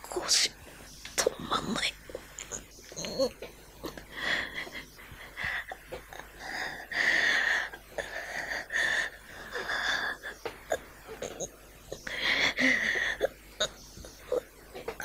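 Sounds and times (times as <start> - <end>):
man breathing heavily: 3.9 - 10.6, 12.0 - 13.3.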